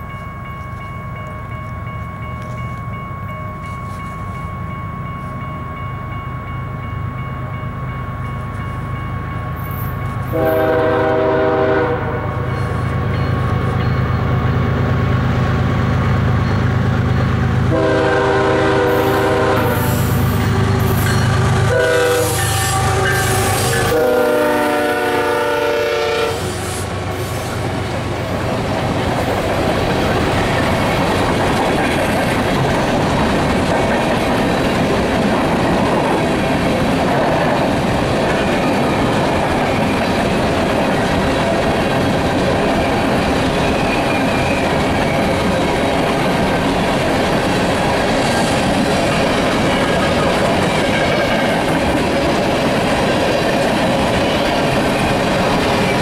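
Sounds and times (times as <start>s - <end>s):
train horn blasts: 10.3s - 12.7s, 17.7s - 27.5s
train wheels clattering: 25.7s - 56.0s.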